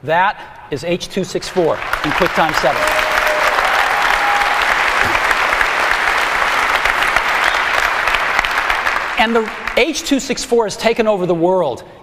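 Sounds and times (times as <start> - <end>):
audience applauding: 1.5 - 10.2.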